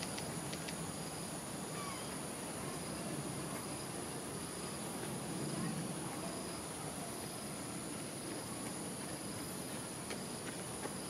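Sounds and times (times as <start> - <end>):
faint clicks: 0.0 - 0.8
faint insect chirps: 0.0 - 11.0.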